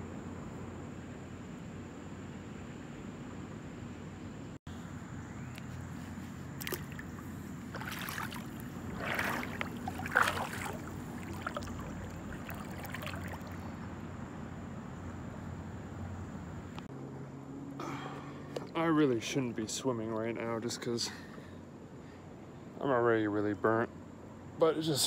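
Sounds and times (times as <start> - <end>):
steady background hum: 0.0 - 25.0
pool water sloshing and splashing: 6.5 - 14.0.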